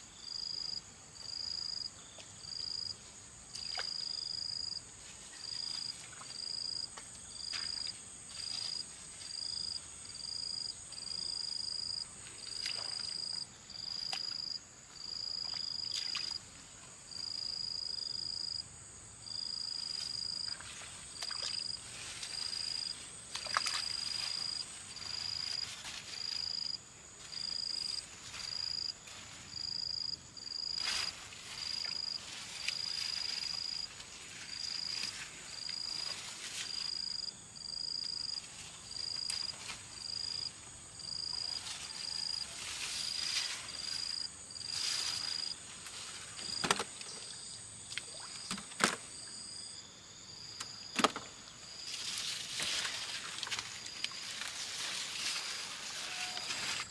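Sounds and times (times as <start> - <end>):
high insect drone: 0.1 - 56.9.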